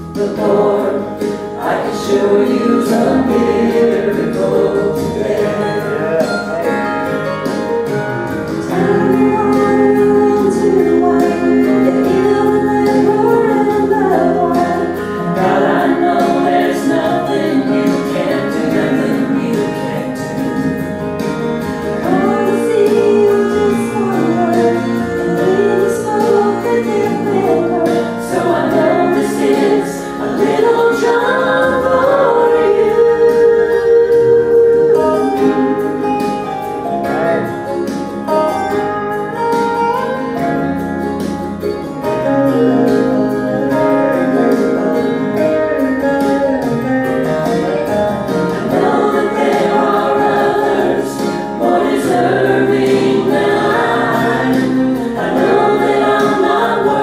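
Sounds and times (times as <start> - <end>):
man and woman singing duet: 0.0 - 7.0, 8.6 - 21.2, 22.0 - 37.9, 48.4 - 57.0
instrumental accompaniment: 0.0 - 57.0.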